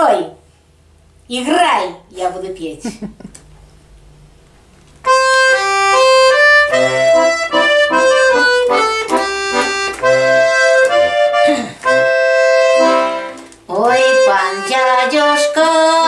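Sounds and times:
button accordion playing: 5.0s - 16.0s.

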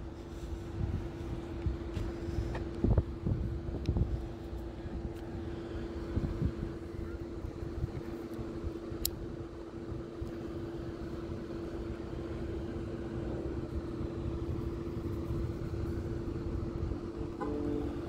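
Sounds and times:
car engine idling: 9.4s - 18.0s.

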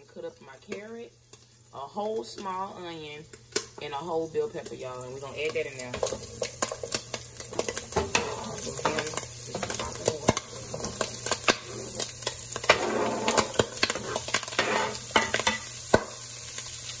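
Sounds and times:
frying crackles: 0.0s - 17.0s
wooden spoon scraping board: 8.0s - 15.1s.

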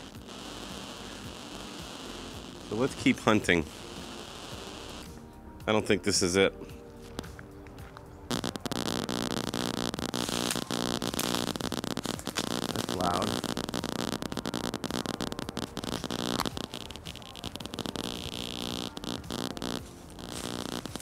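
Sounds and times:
crackling static with buzz: 0.0s - 5.2s, 7.2s - 7.4s, 8.3s - 21.0s.

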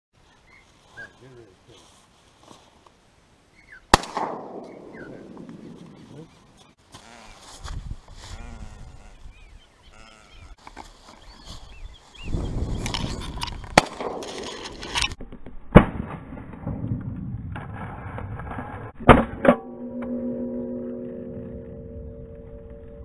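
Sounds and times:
shotgun shots: 3.9s - 5.7s
wind noise on microphone: 7.4s - 10.5s, 11.2s - 13.8s.

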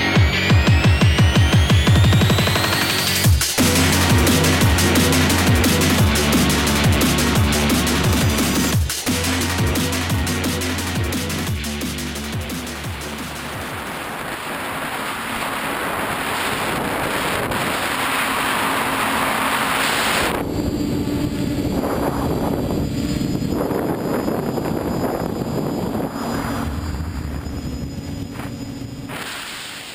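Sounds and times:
drone motors humming: 0.0s - 29.9s
wind buffeting microphone: 13.5s - 29.1s.

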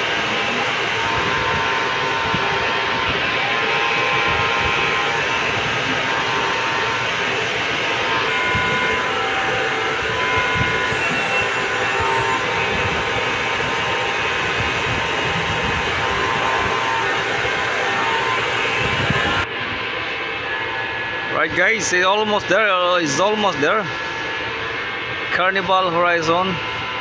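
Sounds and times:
ship machinery drone: 0.0s - 27.0s.

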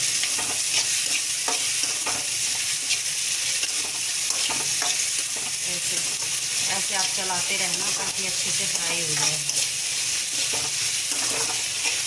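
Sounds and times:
onions sizzling in hot oil: 0.0s - 12.0s
spatula scraping metal pan: 0.1s - 6.4s, 10.3s - 12.0s.

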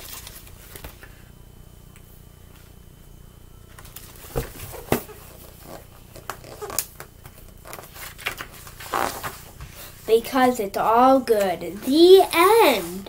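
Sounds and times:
book pages rustling: 0.0s - 1.2s, 3.8s - 9.9s.

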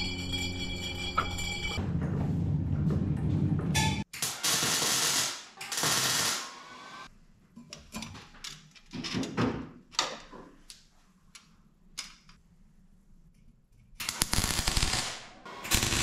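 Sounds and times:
arc welding crackling: 14.0s - 16.0s.

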